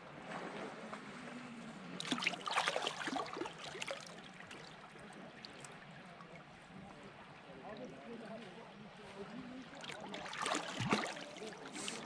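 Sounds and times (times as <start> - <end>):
water splashing and trickling: 2.0 - 6.4, 9.1 - 12.0.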